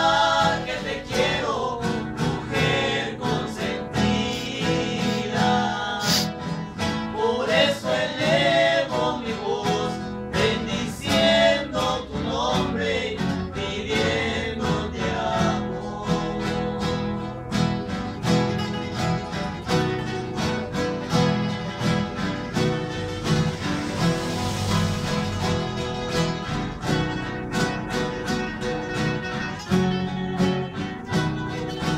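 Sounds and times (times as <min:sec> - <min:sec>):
men singing: 0:00.0 - 0:17.9
acoustic guitars strumming: 0:00.0 - 0:31.9.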